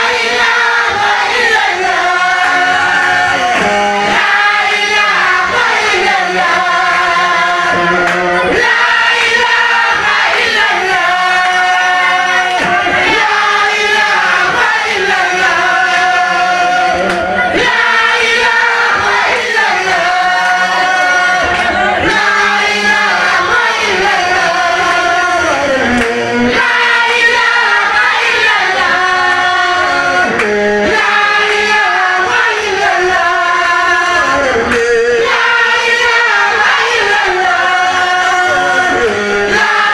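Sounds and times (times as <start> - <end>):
lead singer chanting: 0.0 - 39.9
male chorus singing: 0.0 - 39.9.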